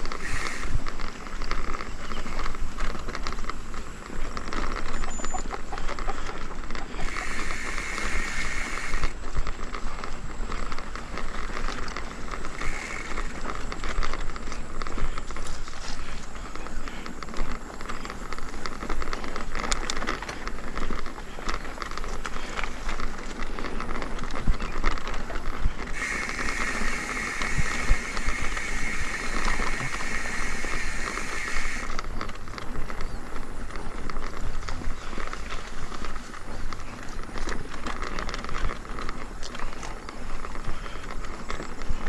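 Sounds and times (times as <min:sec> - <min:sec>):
high buzzing hiss: 0:00.0 - 0:04.4, 0:06.6 - 0:10.8, 0:11.4 - 0:18.6, 0:25.9 - 0:32.1
bike rattling and knocking: 0:00.0 - 0:42.0.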